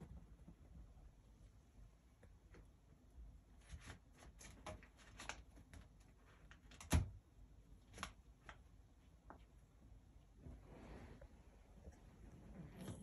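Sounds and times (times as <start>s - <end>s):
cat scratching cardboard: 3.5s - 7.1s.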